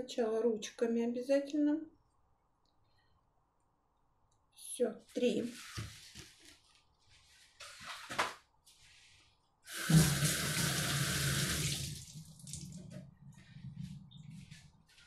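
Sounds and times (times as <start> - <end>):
tap water running into sink: 9.7 - 13.0.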